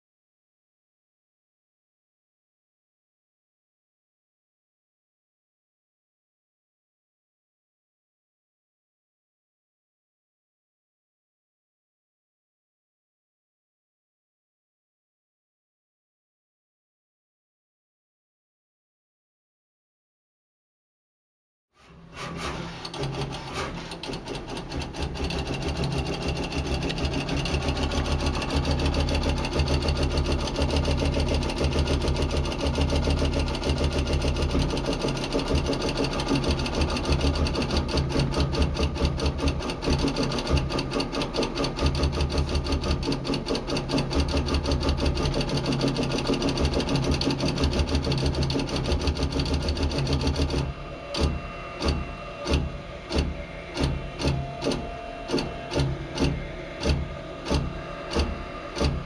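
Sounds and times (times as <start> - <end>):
pulsing motor hum: 21.9 - 59.0
mechanical chatter of clicks: 22.8 - 59.0.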